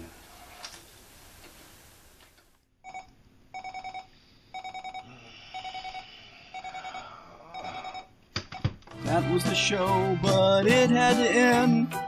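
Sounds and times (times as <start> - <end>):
alarm clock beeping: 2.8 - 8.1.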